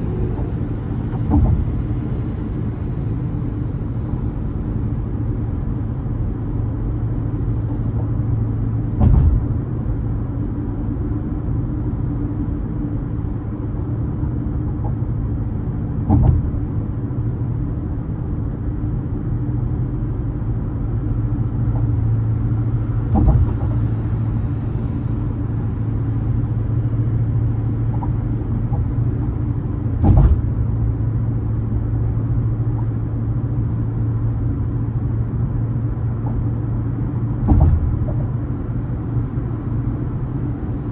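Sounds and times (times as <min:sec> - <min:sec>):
car engine and road noise: 0:00.0 - 0:40.9
short thumps: 0:23.0 - 0:23.9, 0:30.0 - 0:30.7, 0:37.4 - 0:38.3.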